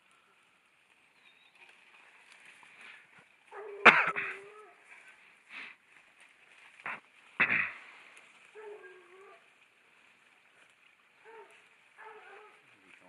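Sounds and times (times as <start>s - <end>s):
dog barking: 3.5s - 4.8s, 8.5s - 9.4s, 11.2s - 12.7s
dog crying: 3.5s - 4.8s.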